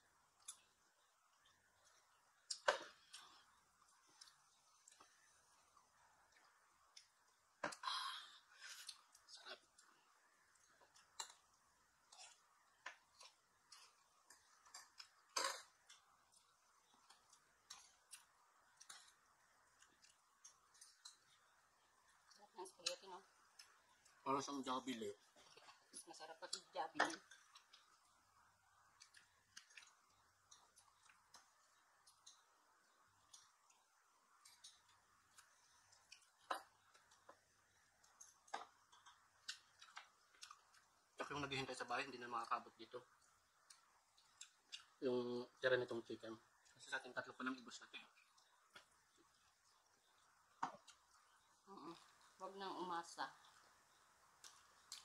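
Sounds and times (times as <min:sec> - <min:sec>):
soft eating clicks and smacks: 0:00.2 - 0:52.4, 0:53.3 - 0:55.0.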